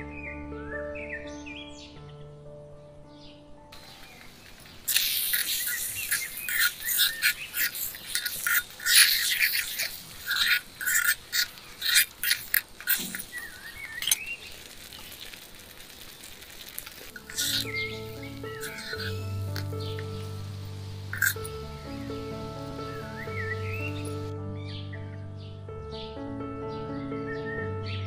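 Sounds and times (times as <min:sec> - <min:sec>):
bird chirps: 0:03.2 - 0:15.3, 0:17.2 - 0:25.3
spoon scraping and squelching: 0:03.8 - 0:24.3.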